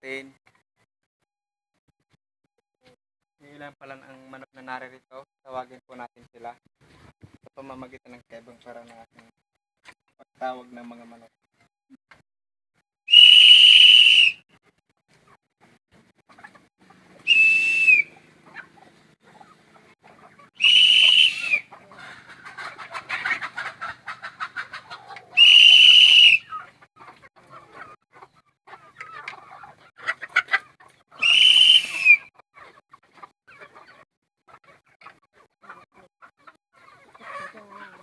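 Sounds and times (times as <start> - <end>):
high whistles: 13.1 - 14.5, 17.2 - 18.1, 20.6 - 21.7, 25.4 - 26.6, 31.2 - 32.3
chickens clucking: 14.7 - 17.3, 17.9 - 25.4, 26.4 - 38.0.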